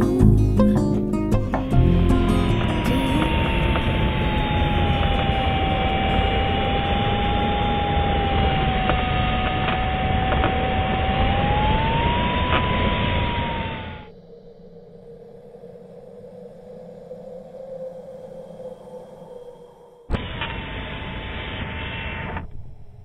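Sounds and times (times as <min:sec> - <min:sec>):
variometer steady tone: 0:01.8 - 0:16.0.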